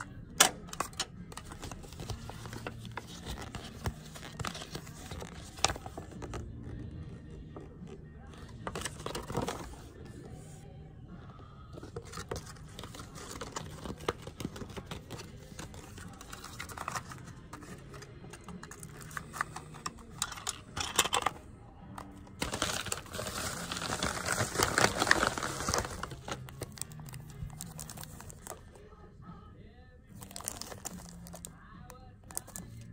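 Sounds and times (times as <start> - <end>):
paper rustling: 0.8 - 6.5, 8.3 - 10.6, 11.8 - 21.3, 22.4 - 28.6
cellophane crinkling: 22.4 - 28.6, 30.2 - 31.5.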